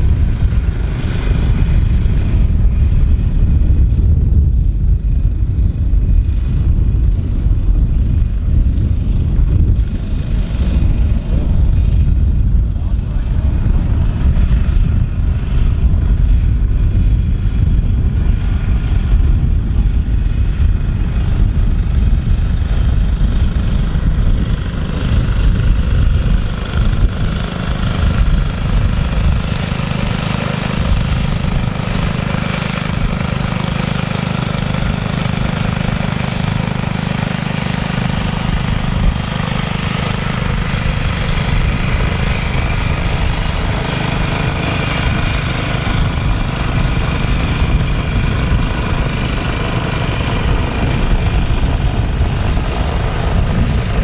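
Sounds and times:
small mower engines running: 0:00.0 - 0:54.0.

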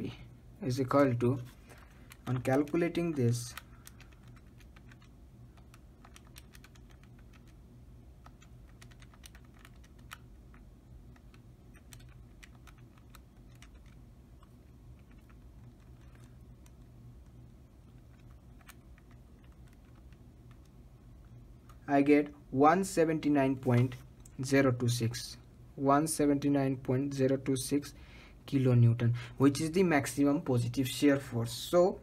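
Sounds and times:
calculator keys clicking: 0:01.8 - 0:07.6, 0:08.2 - 0:10.6, 0:11.2 - 0:14.0.

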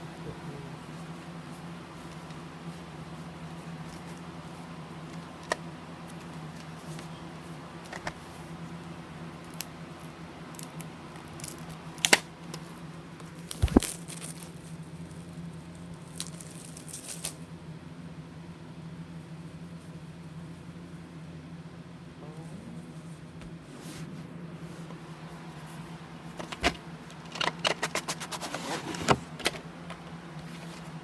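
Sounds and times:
steady low hum: 0:00.0 - 0:31.0
taps and clicks of handling tape: 0:07.8 - 0:08.2, 0:12.0 - 0:12.6, 0:26.3 - 0:28.2
rustling sleeve: 0:23.7 - 0:29.3.

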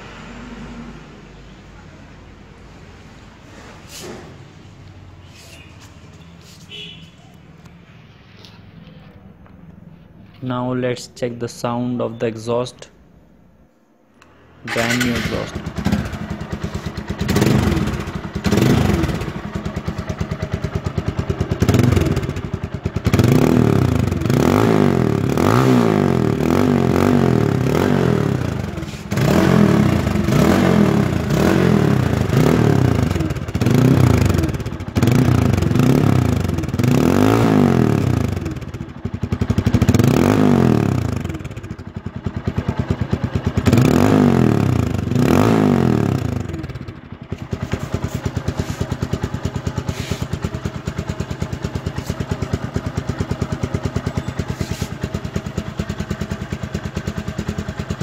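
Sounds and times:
motorcycle engine revving: 0:14.7 - 0:58.0.

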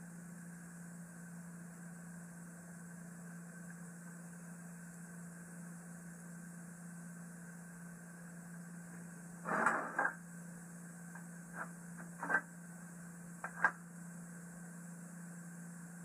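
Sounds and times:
steady low hum: 0:00.0 - 0:16.0
metal scrape: 0:09.4 - 0:10.1.

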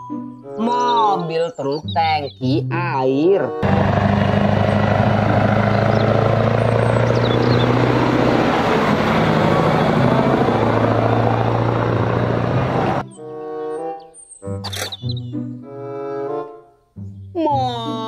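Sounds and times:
diesel truck engine droning: 0:03.5 - 0:13.0
tyre and road noise: 0:03.6 - 0:13.0.

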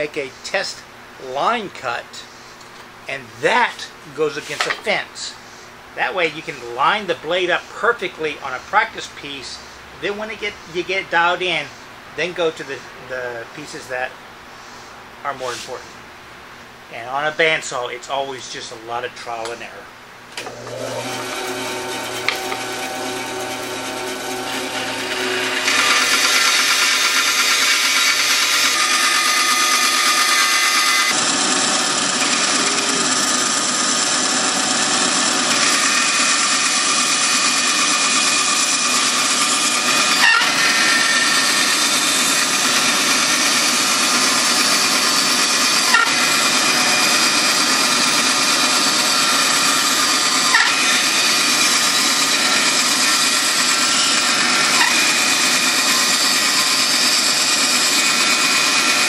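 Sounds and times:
bandsaw cutting wood: 0:03.5 - 0:05.1, 0:20.4 - 0:59.0.

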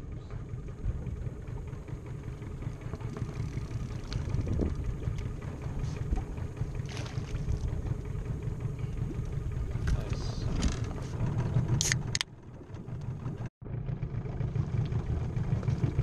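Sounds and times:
wind buffeting microphone: 0:02.6 - 0:11.8.

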